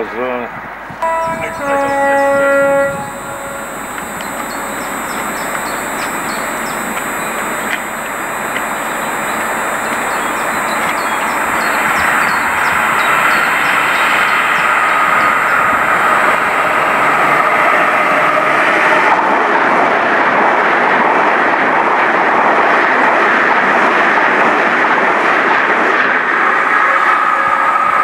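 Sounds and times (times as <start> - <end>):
train passing at speed: 0.0 - 28.0
thin whine: 1.0 - 18.5.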